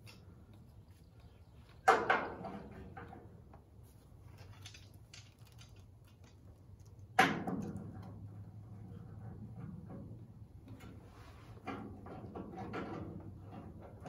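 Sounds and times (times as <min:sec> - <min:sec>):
faint ticks and handling noise: 0:02.8 - 0:07.2.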